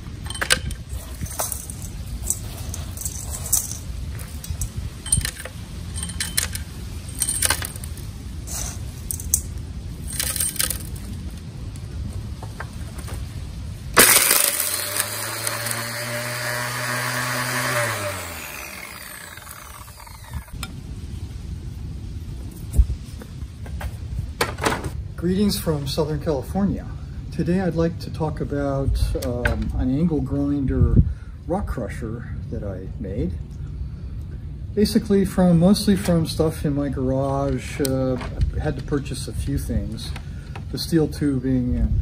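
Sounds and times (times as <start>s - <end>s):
rock pieces knocking against metal: 10.1s - 11.1s
angle grinder running: 14.0s - 20.6s.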